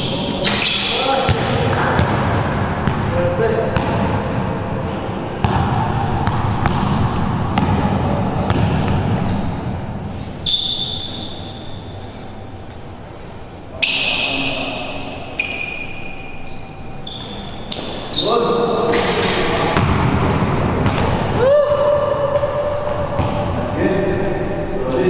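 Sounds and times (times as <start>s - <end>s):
sneaker squeaks on floor: 0.0s - 1.1s, 10.4s - 12.8s, 13.7s - 19.4s
basketball dribbling on court: 5.4s - 9.5s.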